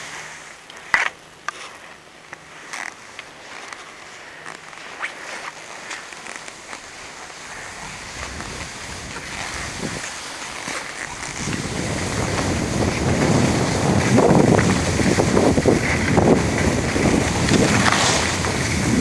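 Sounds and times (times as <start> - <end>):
skis sliding over snow: 0.0 - 19.0
wind buffeting microphone: 7.5 - 10.2, 11.1 - 19.0.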